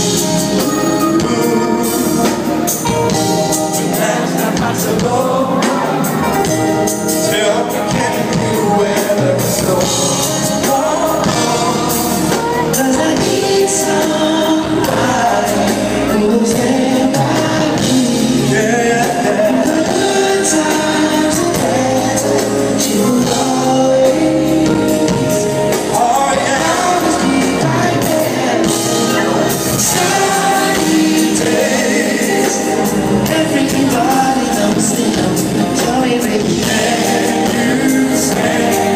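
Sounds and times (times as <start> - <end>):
live band playing: 0.0 - 38.9
male vocal group singing: 0.0 - 38.9.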